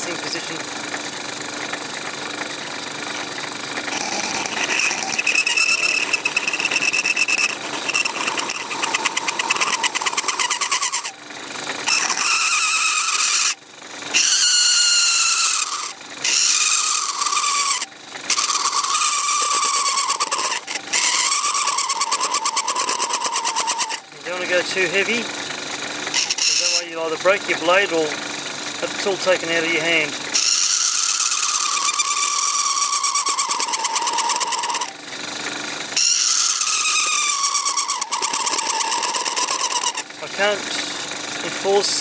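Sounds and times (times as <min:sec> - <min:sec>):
lathe motor running: 0:00.0 - 0:42.0
knife blade squealing on plastic: 0:03.8 - 0:11.2, 0:11.8 - 0:25.3, 0:26.1 - 0:28.2, 0:29.4 - 0:35.0, 0:35.9 - 0:40.9.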